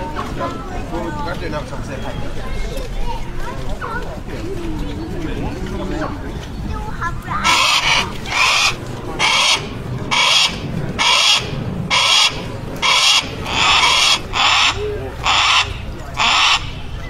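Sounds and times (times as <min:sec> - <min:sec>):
hawk screeching: 0:07.4 - 0:17.0.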